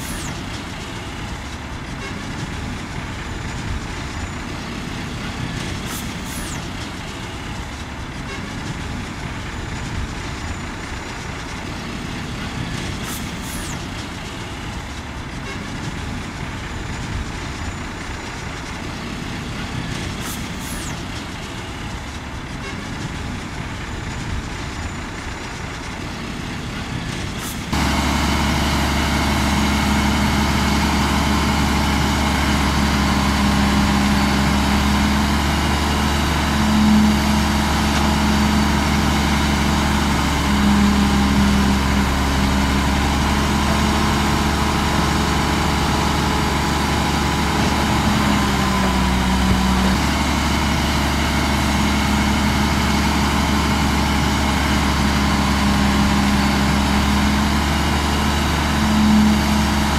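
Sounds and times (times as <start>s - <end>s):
heavy diesel engine running: 0.0s - 59.9s.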